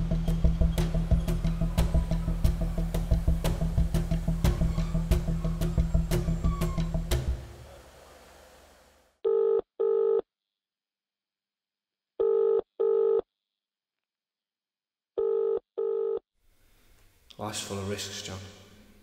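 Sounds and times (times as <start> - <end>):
music: 0.0 - 7.7
telephone ringing tone: 9.3 - 10.2, 12.2 - 13.2, 15.2 - 16.2.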